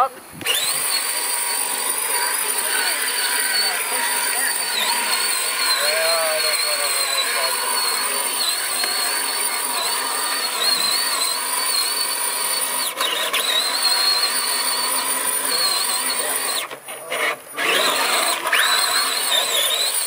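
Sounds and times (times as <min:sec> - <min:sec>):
electric motor and gears whining: 0:00.0 - 0:20.0.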